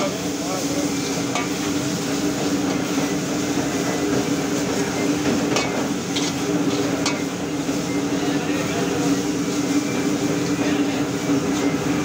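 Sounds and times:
metal ladle scraping wok: 5.5s - 7.3s.

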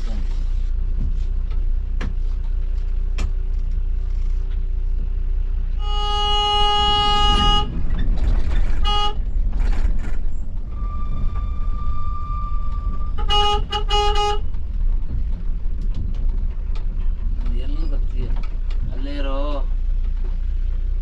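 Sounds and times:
diesel engine rumble: 0.0s - 21.0s
bus horn: 5.8s - 9.8s, 10.7s - 14.7s.

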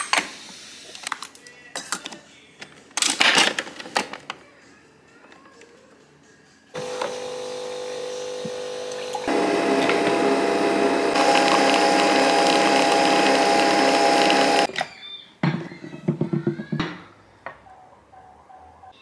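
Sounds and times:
coffee machine humming: 6.8s - 14.7s.

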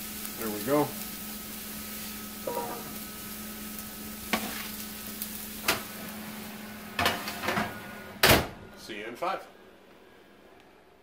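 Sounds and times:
vegetables sizzling on a pan: 0.0s - 8.1s.

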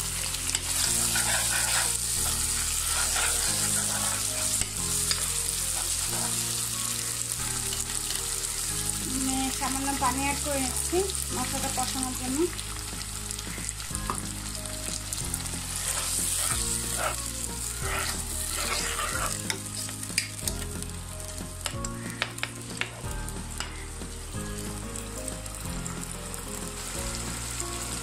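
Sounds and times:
onions sizzling in oil: 0.0s - 28.0s.

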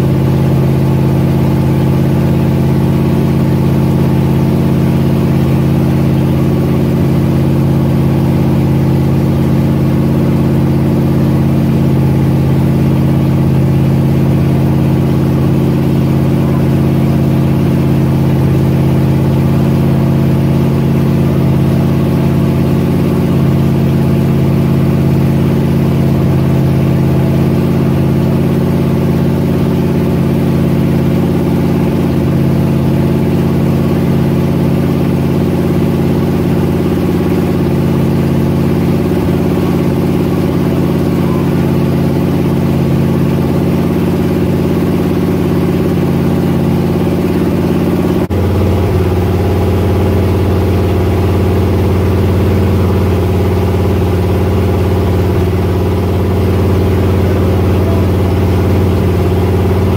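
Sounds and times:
loud engine running: 0.0s - 59.9s.

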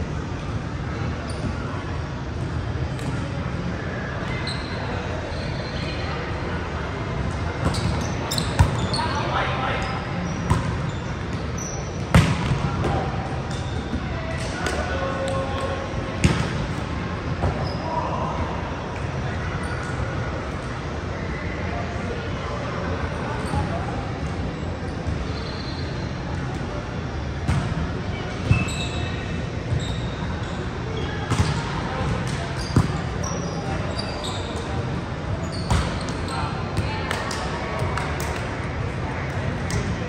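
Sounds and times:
shoe squeaks: 4.3s - 6.0s, 7.6s - 12.0s, 25.2s - 26.1s, 28.4s - 31.1s, 32.6s - 34.8s, 35.4s - 36.6s.

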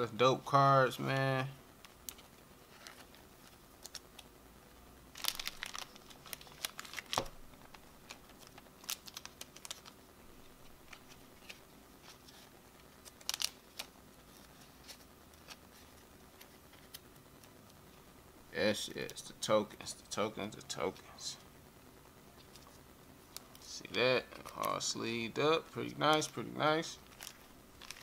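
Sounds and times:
plastic card sleeves crinkling: 1.0s - 4.3s, 5.1s - 17.6s, 22.3s - 28.0s.

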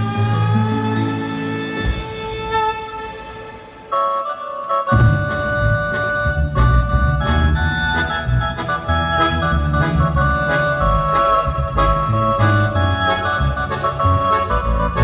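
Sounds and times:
bass guitar: 0.0s - 3.8s, 4.9s - 15.0s
electric keyboard chords: 0.0s - 15.0s
drum hits: 4.9s - 8.0s.

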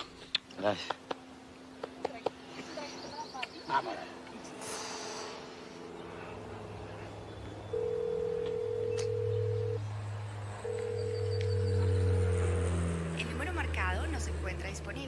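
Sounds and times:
low steady drone: 2.6s - 15.0s
telephone ringing tone: 7.7s - 9.8s, 10.6s - 11.9s.

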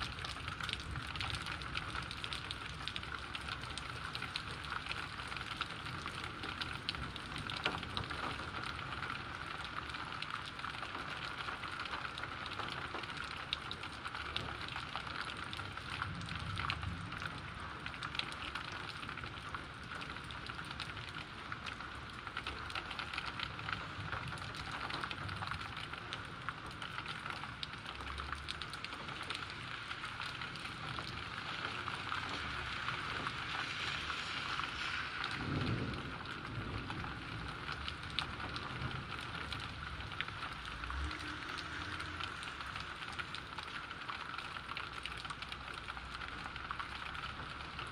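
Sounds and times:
heavy rain falling: 0.0s - 47.9s.

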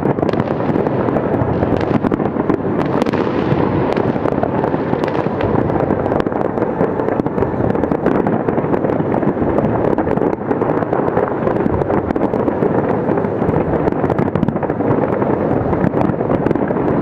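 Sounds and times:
fireworks bursting and crackling: 0.0s - 17.0s.

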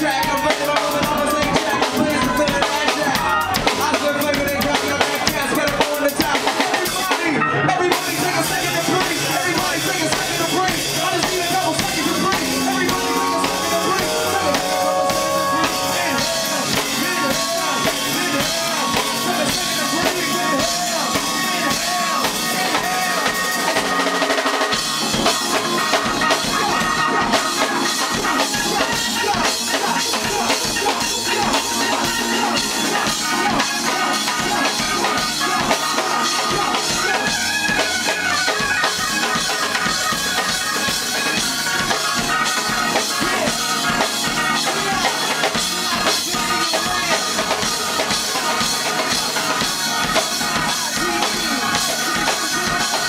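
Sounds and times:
person rapping: 0.0s - 24.0s, 24.8s - 53.0s
drum kit beat: 0.0s - 53.0s
keyboard and bass: 0.0s - 53.0s.

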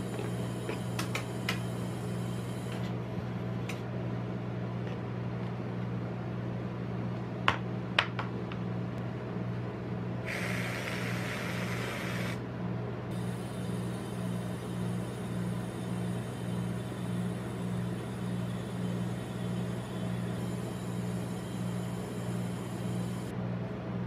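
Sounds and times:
steady low hum: 0.0s - 24.0s
aerosol can spraying: 10.3s - 12.4s.

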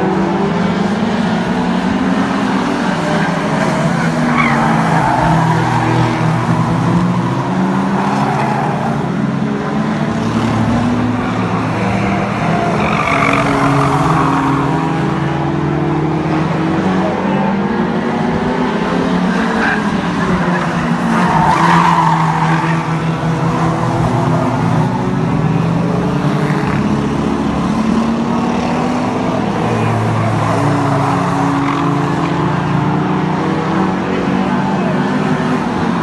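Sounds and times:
racing car engines revving: 0.0s - 36.0s
tyres skidding: 0.9s - 36.0s.

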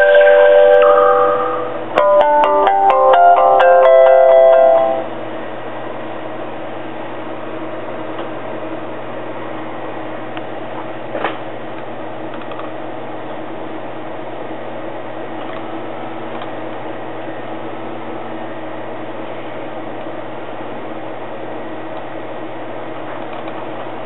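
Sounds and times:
phone startup jingle: 0.0s - 5.1s
steady hum and hiss: 0.0s - 24.0s
click: 12.3s - 12.7s, 16.3s - 16.5s, 23.2s - 23.6s.

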